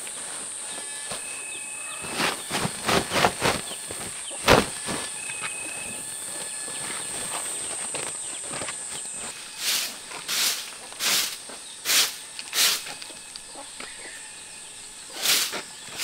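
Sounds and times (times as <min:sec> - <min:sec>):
high insect drone: 0:00.0 - 0:16.0
plastic sack rustling: 0:00.2 - 0:13.0
sack snapping: 0:02.0 - 0:05.4.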